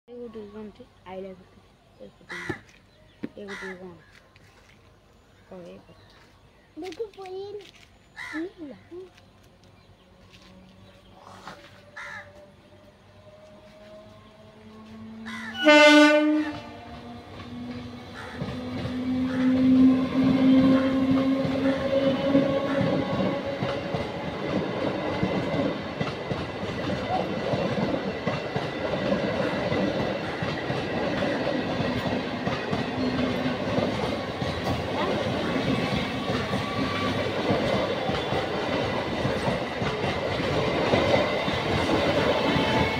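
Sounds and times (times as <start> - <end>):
train horn: 13.5 - 18.4, 19.0 - 24.2
train wheels clattering over rails: 16.6 - 42.9.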